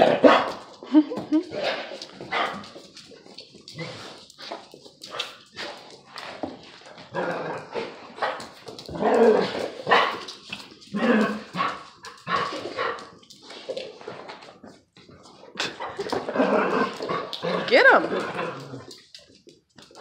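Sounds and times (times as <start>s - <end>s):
dogs barking in play: 0.0s - 0.8s, 1.5s - 3.0s, 7.0s - 13.3s.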